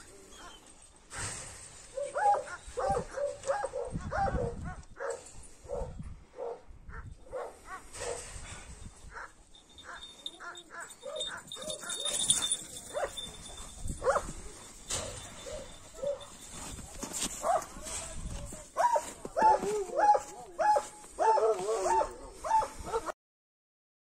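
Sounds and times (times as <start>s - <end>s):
dog barking: 1.9s - 8.3s, 9.1s - 13.3s, 14.0s - 14.4s, 15.0s - 16.3s, 17.4s - 17.8s, 18.8s - 23.1s.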